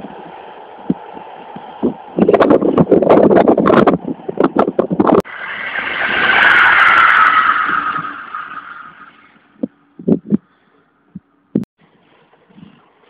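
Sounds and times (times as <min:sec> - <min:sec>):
wind buffeting microphone: 0:00.0 - 0:11.7
electric train passing: 0:05.2 - 0:09.6.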